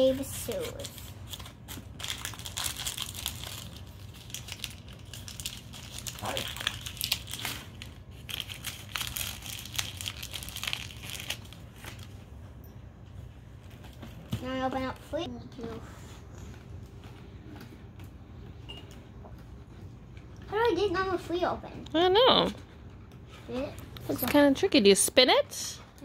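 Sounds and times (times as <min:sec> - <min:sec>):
packaging crackling and rustling: 0:00.0 - 0:12.3.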